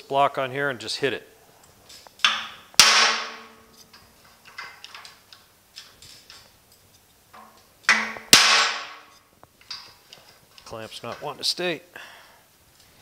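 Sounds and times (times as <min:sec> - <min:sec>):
steel panel ringing: 0:02.3 - 0:03.7, 0:07.4 - 0:09.1.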